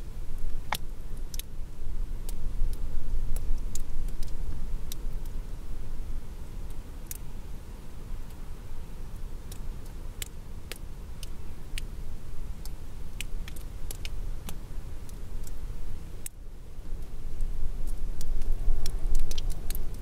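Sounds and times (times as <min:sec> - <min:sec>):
low wind rumble: 0:00.0 - 0:09.0, 0:10.4 - 0:20.0
raindrops ticking: 0:00.4 - 0:01.5, 0:02.3 - 0:05.4, 0:09.4 - 0:11.9, 0:12.6 - 0:15.6, 0:16.2 - 0:16.4, 0:17.0 - 0:20.0.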